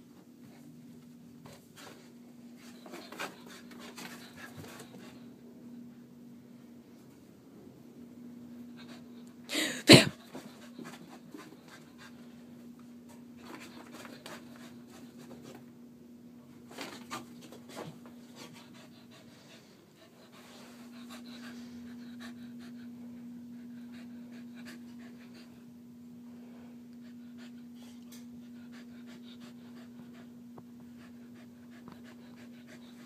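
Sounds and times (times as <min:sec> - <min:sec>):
steady low hum: 0:00.0 - 0:33.0
dog panting: 0:10.3 - 0:12.4, 0:17.0 - 0:25.7, 0:26.9 - 0:33.0.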